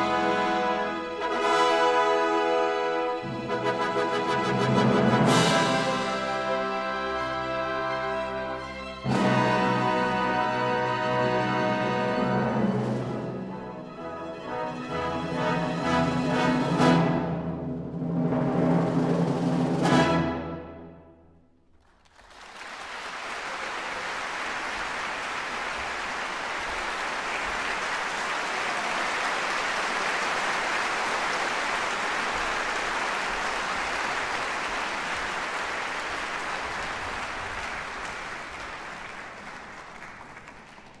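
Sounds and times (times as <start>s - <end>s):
audience applause: 21.8s - 41.0s.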